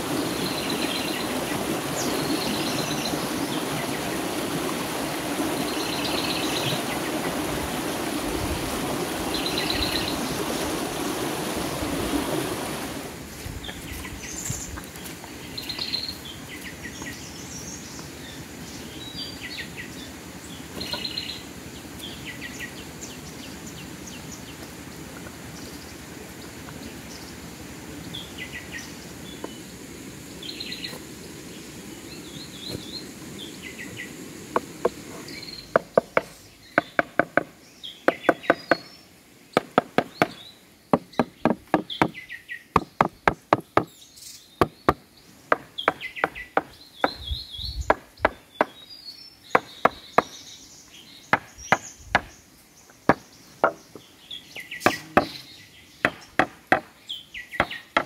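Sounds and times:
birds chirping: 0.0 - 58.0
tool knocking on timber: 34.5 - 35.0, 35.7 - 37.5, 38.1 - 38.9, 39.6 - 42.2, 42.8 - 43.9, 53.1 - 54.0, 56.0 - 56.9.

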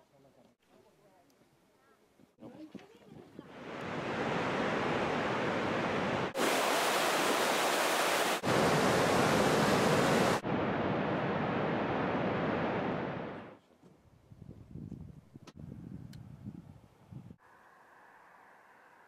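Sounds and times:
waterfall roaring: 3.7 - 13.5.

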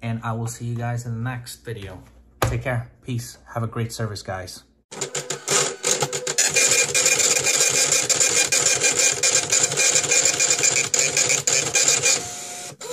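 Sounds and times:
ticket printer chattering: 5.1 - 12.9.

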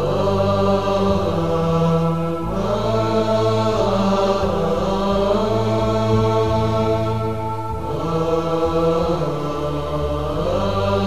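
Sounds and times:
chant with long held notes: 0.0 - 11.0
low drone: 0.0 - 11.0.

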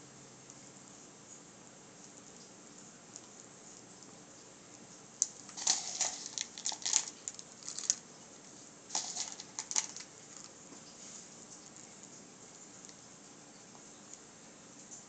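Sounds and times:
wax chunks rattling in glass holder: 5.3 - 8.0, 8.9 - 10.6.

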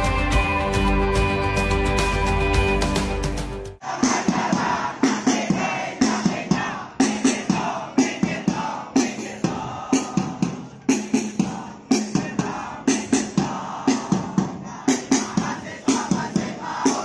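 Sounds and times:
drum beating: 2.6 - 17.0
crowd chanting a cheer: 3.8 - 17.0.

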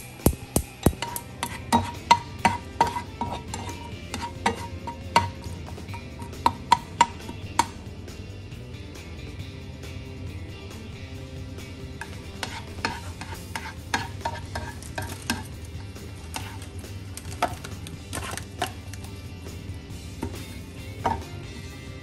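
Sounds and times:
spatula tapping pan: 0.1 - 7.8, 12.0 - 15.6, 16.2 - 18.8
spatula scraping frying pan: 0.9 - 7.7, 12.0 - 19.0
onions sizzling in oil: 12.4 - 15.4.

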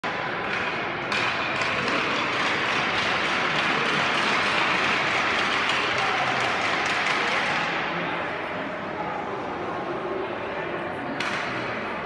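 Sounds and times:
spectators clapping: 1.5 - 7.7.

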